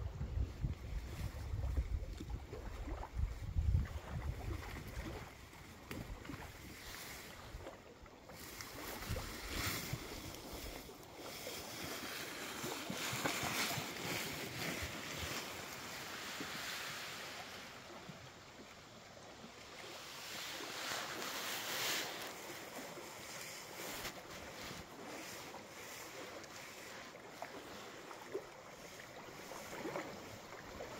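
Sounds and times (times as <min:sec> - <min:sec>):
wind gusting over microphone: 0:00.0 - 0:05.4.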